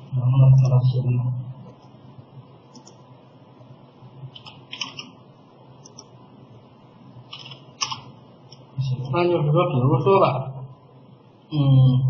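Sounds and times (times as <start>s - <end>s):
steady low hiss: 0.0s - 12.0s
keyboard and mouse clicks: 2.7s - 3.0s, 4.3s - 5.1s, 5.8s - 6.1s, 7.3s - 8.1s.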